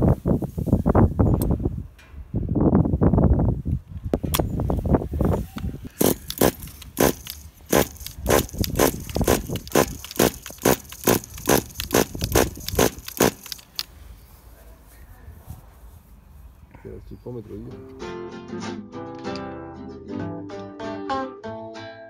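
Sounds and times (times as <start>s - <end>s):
pull starter rasping: 6.0s - 13.9s.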